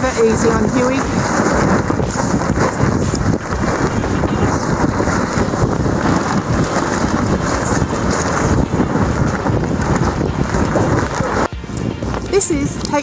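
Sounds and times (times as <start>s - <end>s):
sail flapping and rustling: 0.0s - 13.0s
wind buffeting microphone: 0.0s - 13.0s.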